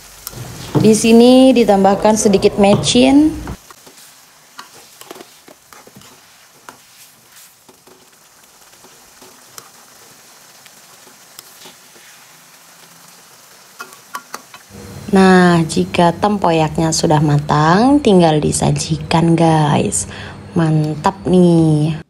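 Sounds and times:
sauce simmering in a wok: 0:03.5 - 0:15.2
small pops and ticks: 0:13.8 - 0:14.7.

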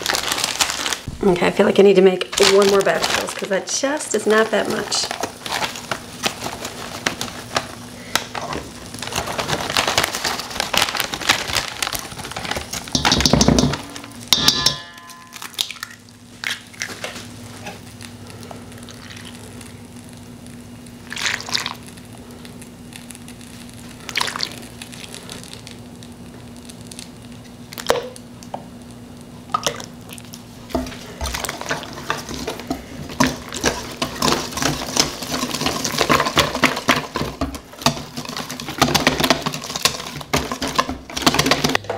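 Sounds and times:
plastic bag crinkling: 0:00.0 - 0:14.2, 0:21.0 - 0:28.2, 0:29.6 - 0:41.8
whisk rattling in metal bowl: 0:12.3 - 0:15.0, 0:30.7 - 0:41.8
milk pouring: 0:21.1 - 0:21.8, 0:24.1 - 0:24.6.

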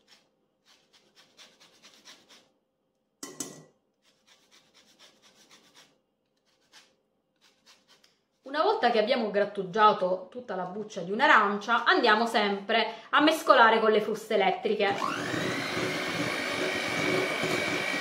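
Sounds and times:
zester scratching orange peel: 0:00.0 - 0:02.5, 0:04.0 - 0:08.5.

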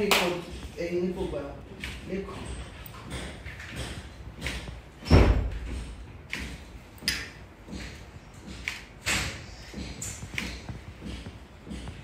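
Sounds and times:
heavy thump: 0:03.1 - 0:06.6.

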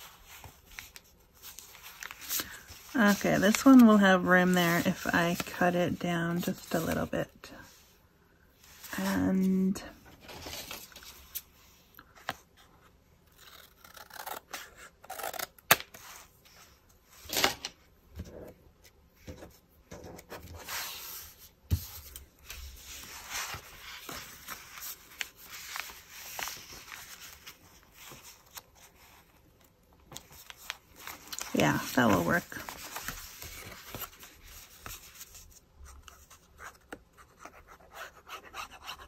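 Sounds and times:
paper rustling and rubbing: 0:00.0 - 0:05.7, 0:19.9 - 0:29.5, 0:30.1 - 0:39.0.

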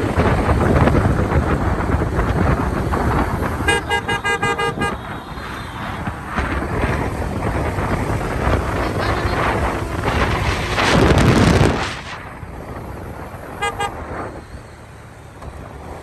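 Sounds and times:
vehicle road and wind noise: 0:00.0 - 0:16.0
car horn toot: 0:03.6 - 0:05.9, 0:13.6 - 0:14.0.

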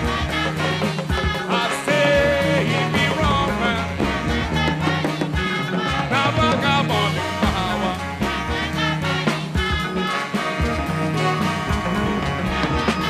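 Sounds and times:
live band playing: 0:00.0 - 0:13.0
person singing: 0:01.2 - 0:04.3.

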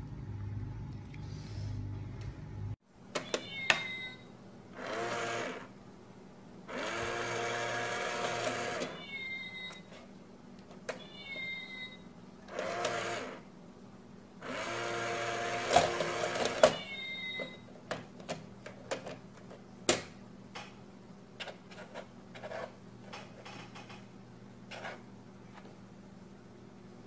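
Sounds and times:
small toy motor whirring: 0:04.8 - 0:05.7, 0:06.7 - 0:09.0, 0:14.4 - 0:16.6.

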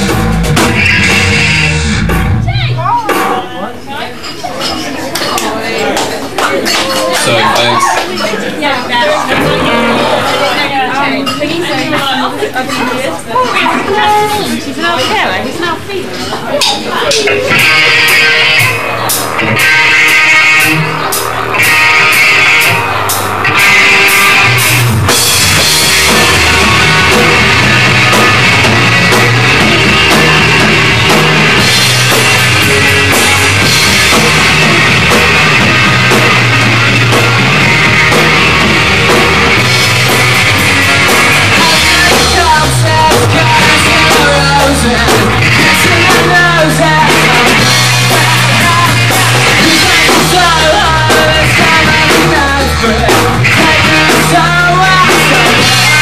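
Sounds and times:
electric guitar: 0:00.0 - 0:03.0, 0:09.0 - 0:10.8, 0:17.1 - 0:56.0
bass guitar: 0:00.0 - 0:03.2, 0:09.1 - 0:11.0, 0:17.0 - 0:56.0
drum kit: 0:00.0 - 0:03.6, 0:09.2 - 0:10.8, 0:16.6 - 0:56.0.

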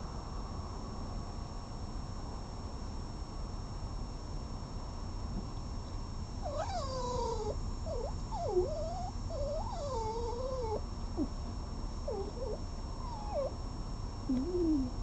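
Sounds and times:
cat yowling: 0:06.5 - 0:10.8, 0:12.1 - 0:13.5.

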